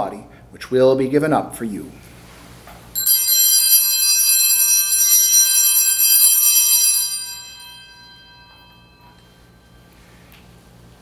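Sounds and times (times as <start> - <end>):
altar bells jingling: 3.0 - 10.1.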